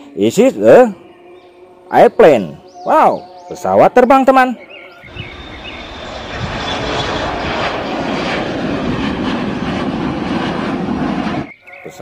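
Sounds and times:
jet engines roaring: 5.0 - 12.0.

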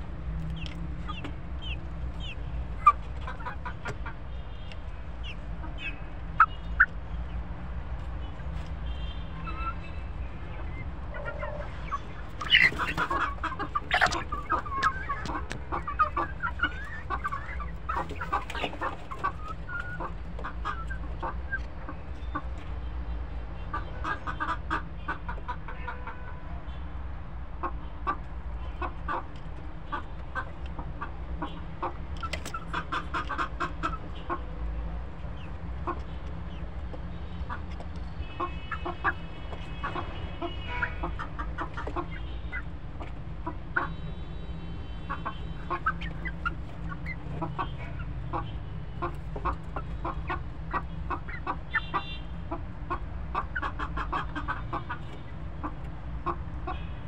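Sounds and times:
hens clucking: 0.3 - 7.4, 9.4 - 22.7, 23.6 - 26.3, 27.6 - 44.1, 44.8 - 57.0
hen drawn-out calls: 11.1 - 21.4.

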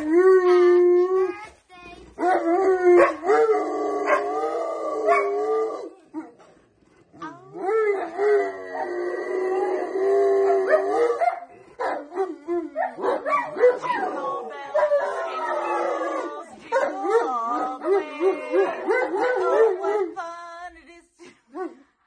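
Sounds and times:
dog howling: 2.2 - 6.0, 7.3 - 20.1.

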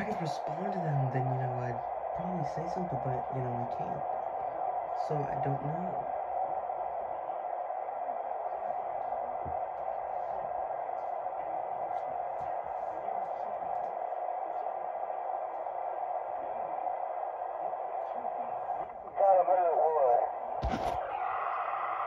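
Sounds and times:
radio static hiss: 18.1 - 21.0.

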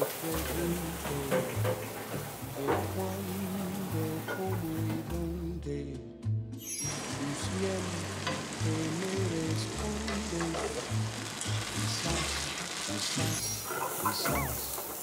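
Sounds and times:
spaghetti sizzling in frying pan: 0.0 - 5.1, 6.8 - 15.0
background music: 0.0 - 14.8
tongs tossing food in pan: 6.9 - 15.0.

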